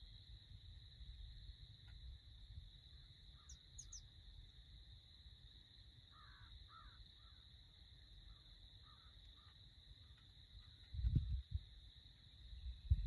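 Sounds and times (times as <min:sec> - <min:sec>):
faint high whine: 0:00.0 - 0:13.0
high bird chirps: 0:03.4 - 0:04.1
distant bird harsh calls: 0:06.1 - 0:07.4.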